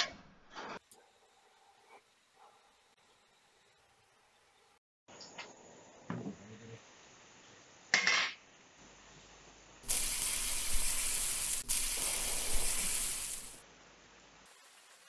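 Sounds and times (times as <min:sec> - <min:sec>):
chicken sizzling over charcoal: 0:09.8 - 0:13.6.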